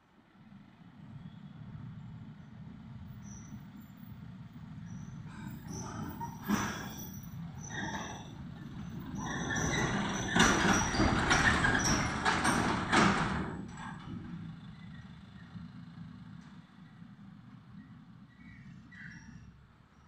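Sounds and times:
truck engine driving past: 0.1 - 20.0
truck knocks and rattles: 4.6 - 16.8.

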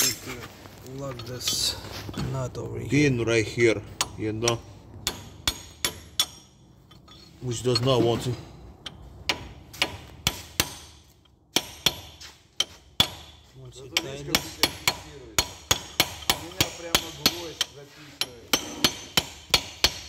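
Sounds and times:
hammer tapping metal punch: 3.9 - 7.2, 8.8 - 20.0.

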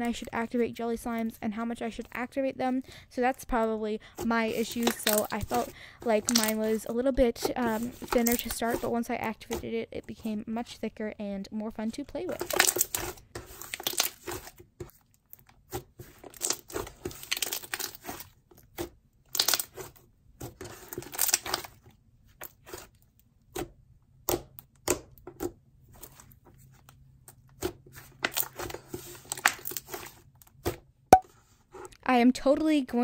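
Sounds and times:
slime crackling and popping: 12.4 - 14.6, 16.0 - 20.0, 20.7 - 21.8.

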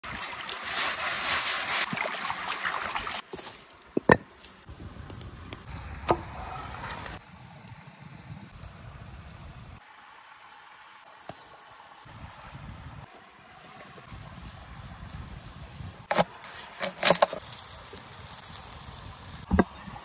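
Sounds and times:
stream water running: 0.0 - 20.0
stone slab knocking on rocks: 4.0 - 4.3
sand scraping on stone: 16.0 - 19.6.

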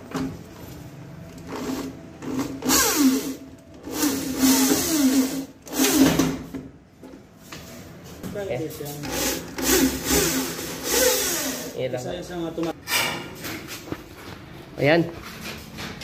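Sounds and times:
electric drill on steel: 1.5 - 6.1, 9.1 - 11.8.

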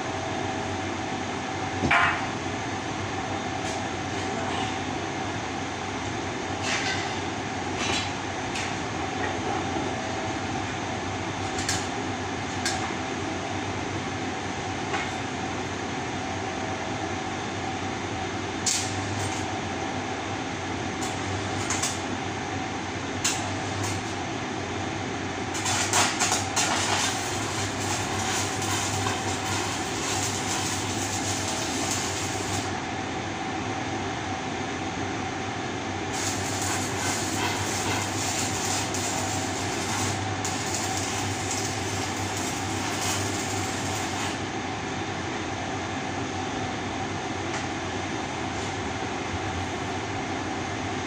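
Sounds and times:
workshop hum with faint tone: 0.0 - 51.0
welding arc crackling and hissing: 18.7 - 19.5, 21.0 - 22.1, 23.2 - 24.2, 25.4 - 32.8, 36.1 - 44.5.

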